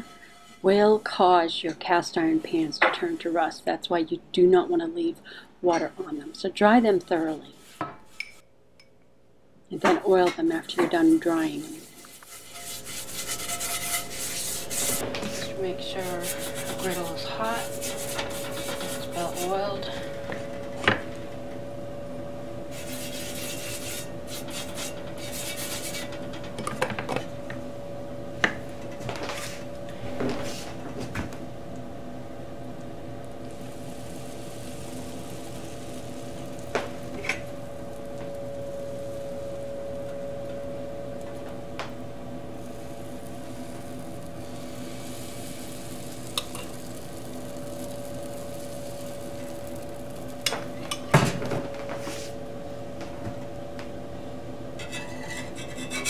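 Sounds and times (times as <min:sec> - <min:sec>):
steady hum: 0:00.0 - 0:56.0
batter sizzling on a griddle: 0:11.4 - 0:15.0, 0:33.2 - 0:40.0, 0:42.4 - 0:52.4
utensils clinking against pan: 0:54.8 - 0:56.0.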